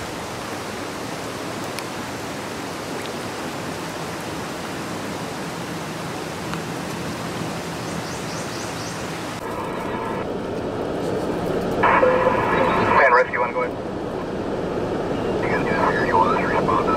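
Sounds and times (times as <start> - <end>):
floodwater rushing: 0.0 - 10.5.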